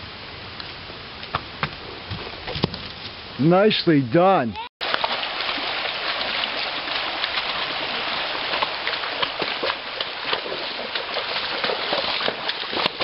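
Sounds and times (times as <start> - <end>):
creek rushing: 3.4 - 13.0
horse hooves on stones splashing: 4.8 - 13.0.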